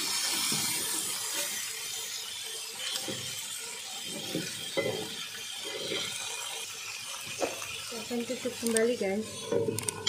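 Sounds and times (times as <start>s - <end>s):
fish sizzling in a pan: 0.0s - 10.0s
metal spatula scraping a pan: 2.8s - 10.0s.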